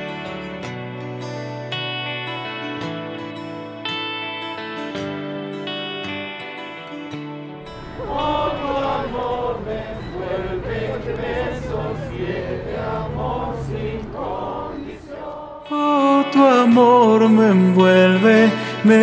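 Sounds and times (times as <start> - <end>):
group of voices singing chant: 7.8 - 16.2.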